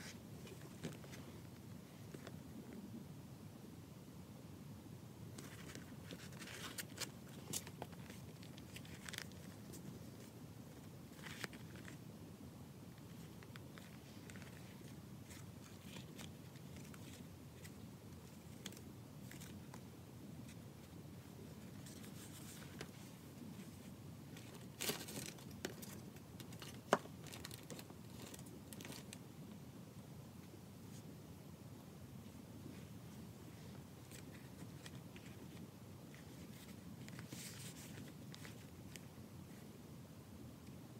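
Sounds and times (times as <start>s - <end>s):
paper pages turning: 5.4s - 10.3s, 11.1s - 12.0s, 13.0s - 19.8s, 34.0s - 39.0s.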